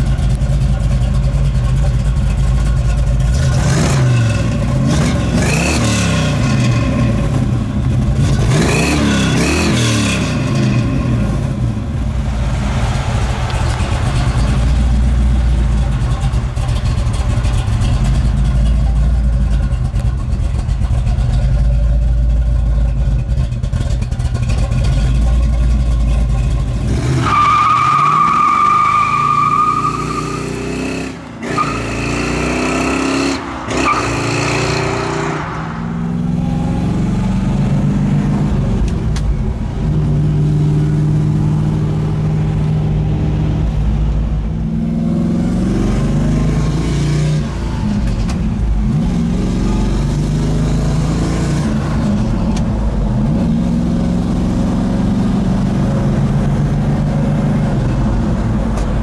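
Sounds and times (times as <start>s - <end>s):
car engine revving through gears: 3.3s - 11.7s, 26.7s - 43.5s, 44.7s - 59.0s.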